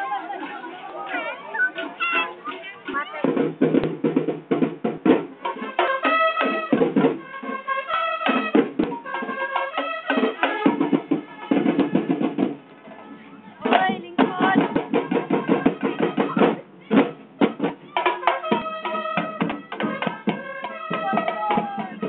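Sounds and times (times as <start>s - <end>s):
voices: 0.0s - 3.7s, 12.7s - 22.0s
percussion band drumming: 0.0s - 22.0s
held melodic notes: 5.3s - 22.0s.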